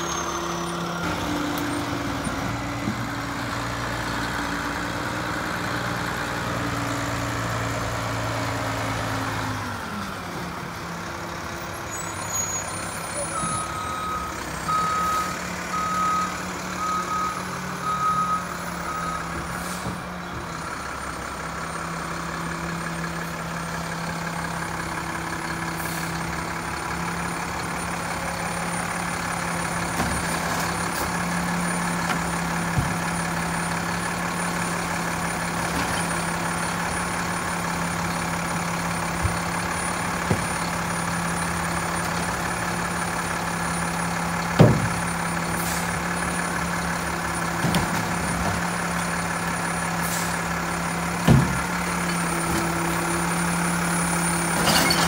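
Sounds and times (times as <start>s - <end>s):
diesel engine running: 0.0s - 55.0s
truck reverse alarm beeping: 11.9s - 20.0s.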